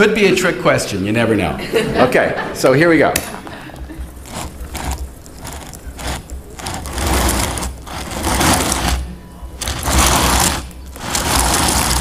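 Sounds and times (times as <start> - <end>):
steady low hum: 3.4 - 12.0
stone slabs scraping on board: 4.2 - 12.0.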